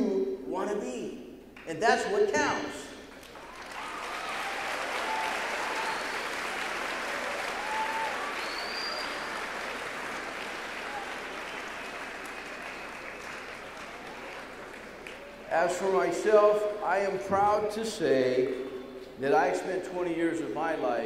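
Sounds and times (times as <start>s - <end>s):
audience applauding: 3.1s - 15.5s.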